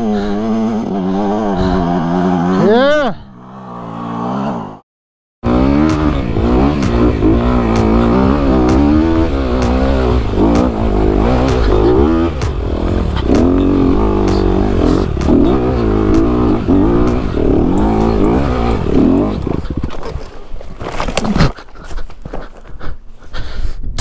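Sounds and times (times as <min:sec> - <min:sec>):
dirt bike engine revving: 0:00.0 - 0:04.8, 0:05.4 - 0:20.3
bike clicking and knocking on rocks: 0:19.4 - 0:22.9.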